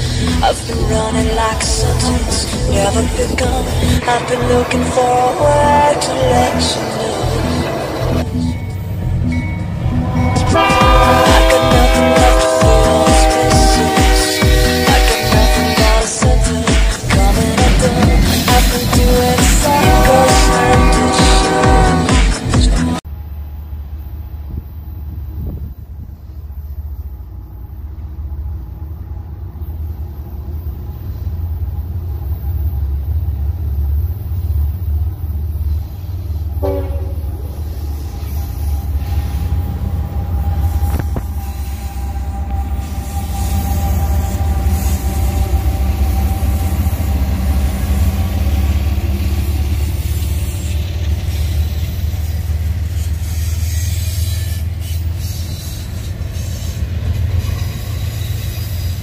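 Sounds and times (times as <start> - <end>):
freight train rumbling by: 0.0 - 59.0
train horn chord: 9.8 - 23.0, 36.5 - 49.7.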